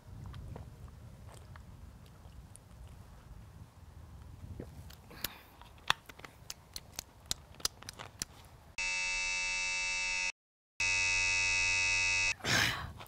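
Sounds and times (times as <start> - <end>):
harsh alert buzz: 8.8 - 12.4.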